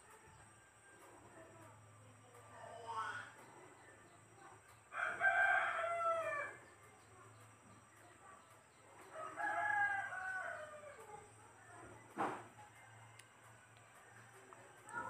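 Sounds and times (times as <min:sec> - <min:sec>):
rooster crowing: 0:04.9 - 0:06.6, 0:09.0 - 0:11.3.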